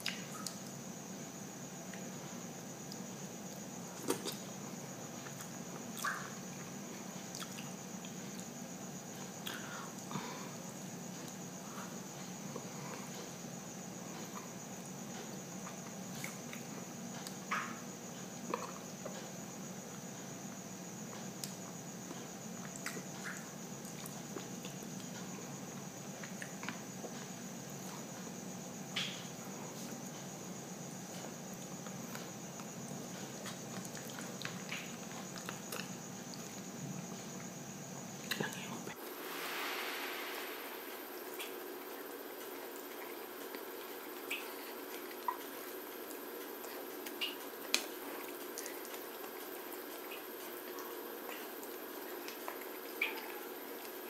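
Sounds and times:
steady background hiss: 0.0 - 54.0
chewing clicks and smacks: 33.4 - 36.5
low hum: 39.0 - 43.0.

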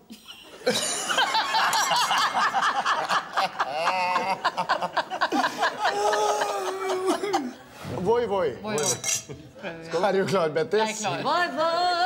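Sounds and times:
men and woman laughing: 0.1 - 7.7.

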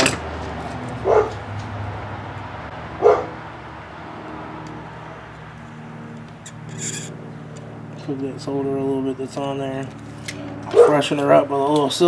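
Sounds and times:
dog barking: 1.0 - 1.4, 3.0 - 3.4, 10.7 - 11.0.

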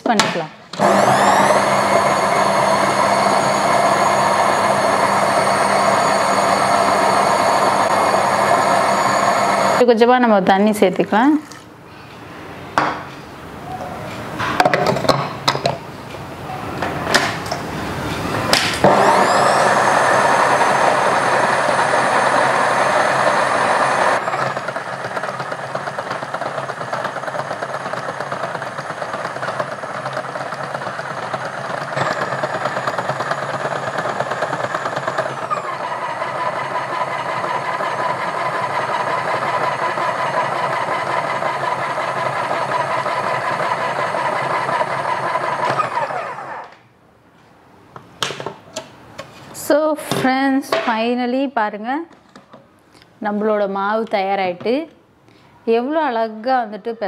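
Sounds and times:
food processor motor running: 0.8 - 9.8, 18.8 - 46.8.

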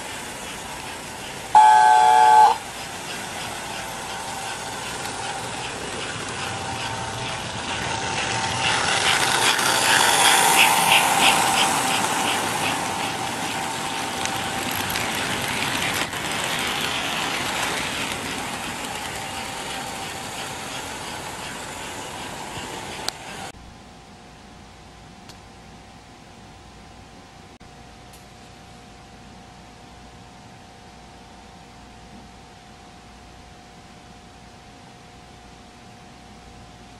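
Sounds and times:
toy train rumbling: 0.0 - 23.5
wheels clicking over track joints: 2.7 - 23.5.

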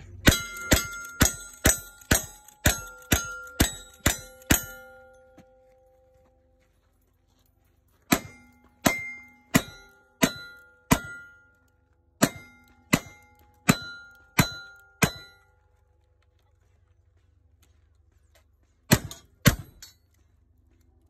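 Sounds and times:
bullets clanging on steel targets: 0.0 - 6.2, 7.9 - 15.8, 18.9 - 20.3.

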